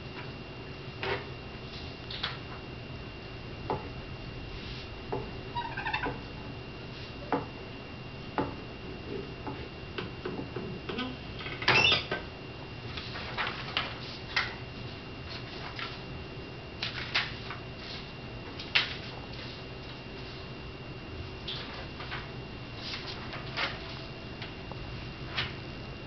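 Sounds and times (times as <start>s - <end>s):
paper sheets rustling: 12.9s - 16.0s, 16.8s - 20.5s, 21.5s - 24.1s, 25.2s - 25.6s.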